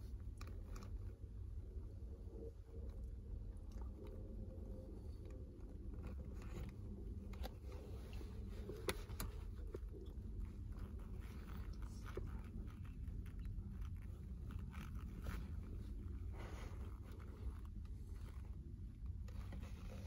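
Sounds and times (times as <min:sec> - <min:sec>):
leather and fabric rubbing: 0:04.8 - 0:20.0.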